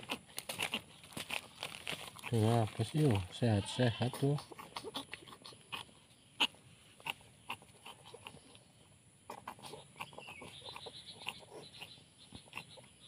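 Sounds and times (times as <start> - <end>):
kitten hiccuping: 4.4 - 8.4.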